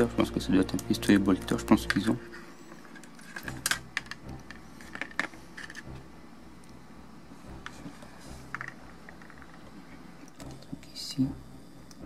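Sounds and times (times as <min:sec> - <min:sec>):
plastic parts clicking: 0:02.9 - 0:05.9.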